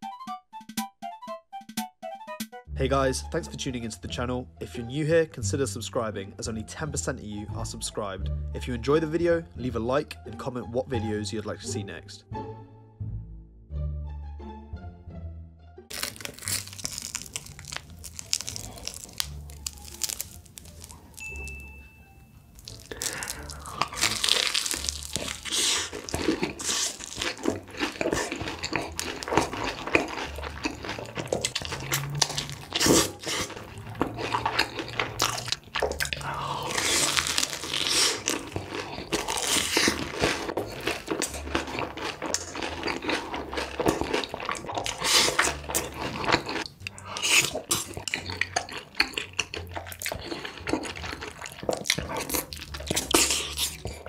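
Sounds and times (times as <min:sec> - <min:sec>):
crunching bites: 0:15.9 - 0:21.5, 0:22.6 - 0:54.0
wet chewing: 0:15.9 - 0:54.0.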